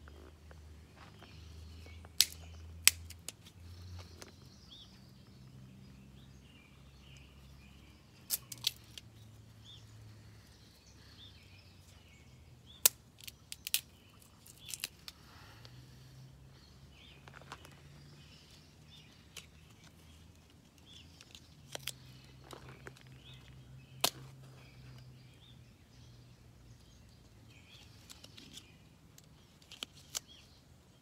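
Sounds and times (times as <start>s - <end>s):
dry sticks snapping: 1.2s - 4.4s, 8.2s - 9.1s, 12.7s - 15.2s, 19.0s - 24.3s, 27.8s - 30.5s.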